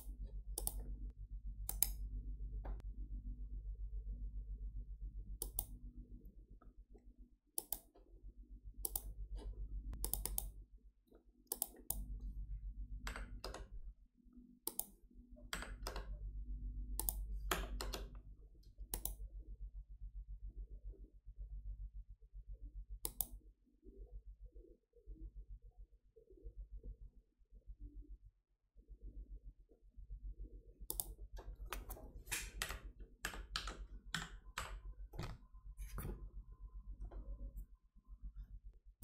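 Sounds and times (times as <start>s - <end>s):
computer mouse clicking: 0.0s - 0.9s, 1.7s - 2.0s, 5.4s - 5.7s, 7.6s - 7.9s, 8.8s - 9.1s, 10.0s - 10.6s, 11.5s - 12.1s, 14.6s - 15.0s, 17.0s - 18.1s, 18.9s - 19.2s, 23.0s - 23.4s, 30.9s - 36.2s
low steady hum: 0.0s - 10.9s, 11.6s - 39.0s.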